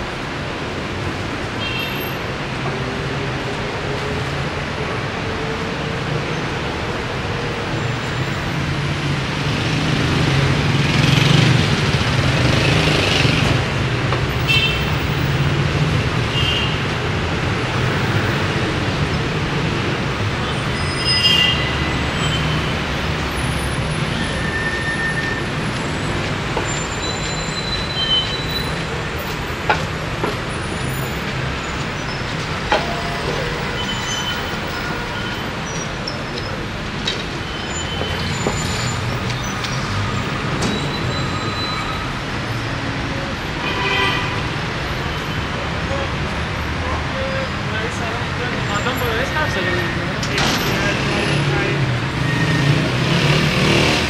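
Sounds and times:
buses and cars passing: 0.0 - 54.0.

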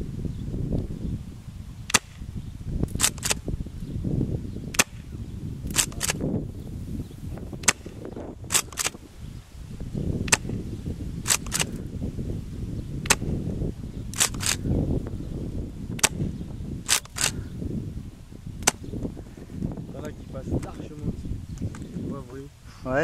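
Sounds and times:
wind rumble on microphone: 0.0 - 23.0
airsoft shotgun shots: 1.9 - 2.2, 4.7 - 5.1, 7.6 - 9.0
shotgun pump clicks: 2.9 - 3.4, 5.7 - 6.2, 7.6 - 9.0, 10.2 - 10.6, 11.2 - 11.8, 14.1 - 14.6, 16.0 - 16.2, 16.9 - 17.4.

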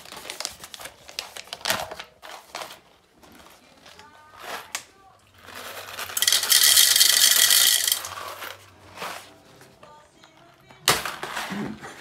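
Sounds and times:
coffee beans rattling into hopper: 5.4 - 8.6.

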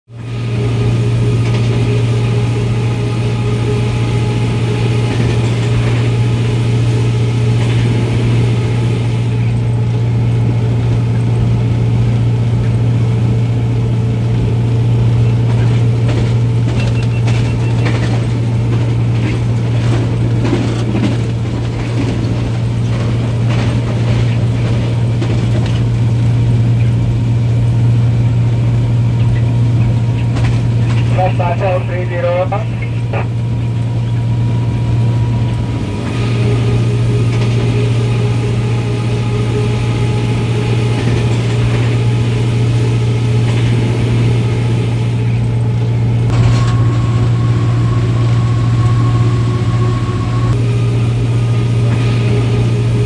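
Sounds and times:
diesel locomotive engine drone: 0.0 - 53.0
wheels clicking on track: 14.8 - 27.8.

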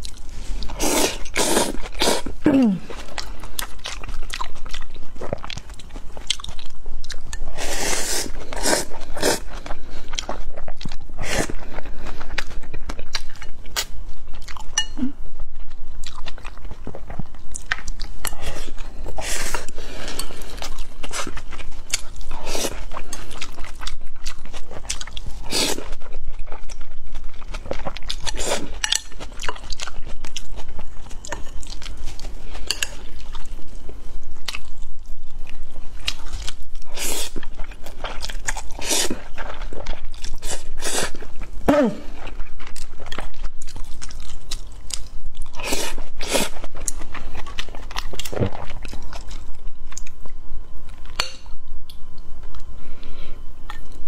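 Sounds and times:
slurping noodles: 0.5 - 2.4.

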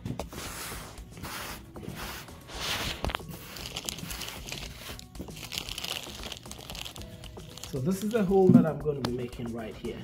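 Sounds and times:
crinkling rustling handling noise: 2.5 - 9.2.

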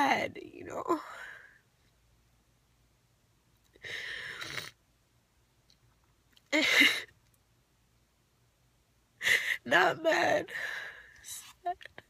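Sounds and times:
woman crying and sniffling: 6.6 - 7.1, 9.2 - 9.7.

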